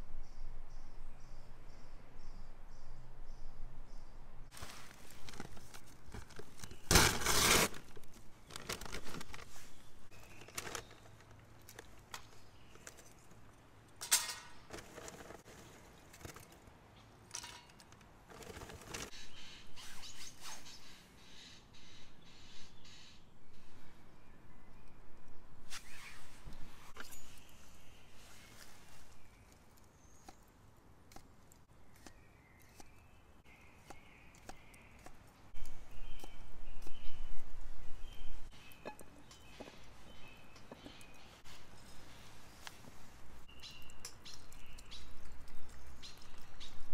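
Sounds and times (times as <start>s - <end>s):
charcoal clattering on metal: 14.0s - 16.4s, 17.3s - 19.0s
birds chirping: 31.4s - 46.9s.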